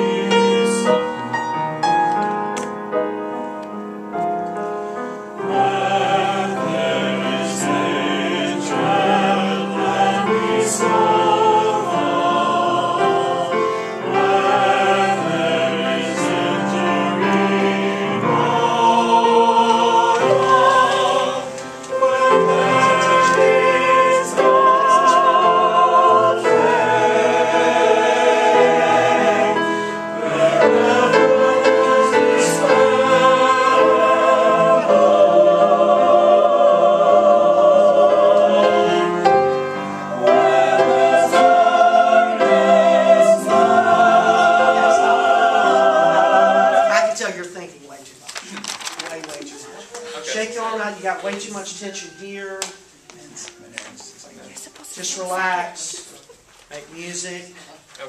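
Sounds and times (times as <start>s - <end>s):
choir singing: 0.0s - 2.1s, 4.7s - 47.5s
piano accompaniment: 0.0s - 47.6s.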